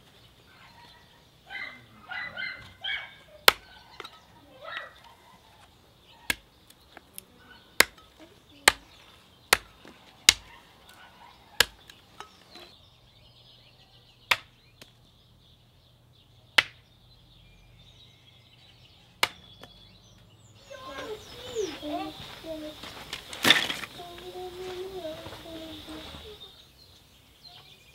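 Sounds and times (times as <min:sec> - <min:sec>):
hatchet chopping branch: 0:03.4 - 0:04.1, 0:06.3 - 0:10.5, 0:11.6 - 0:12.4, 0:14.3 - 0:15.0, 0:16.6 - 0:16.8, 0:19.2 - 0:19.8.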